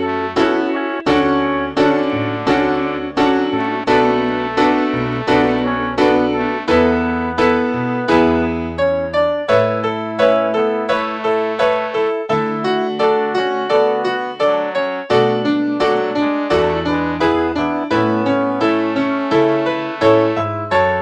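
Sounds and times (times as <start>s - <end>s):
piano playing repeated chords: 0.0s - 21.0s.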